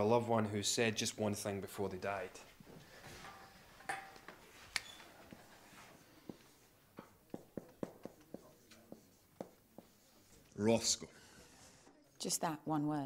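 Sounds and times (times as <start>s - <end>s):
marker squeaking on whiteboard: 7.3s - 10.4s.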